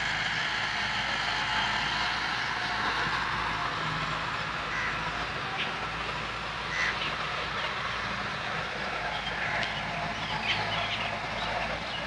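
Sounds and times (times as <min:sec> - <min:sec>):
birds chirping: 0:04.7 - 0:05.9, 0:06.6 - 0:12.0.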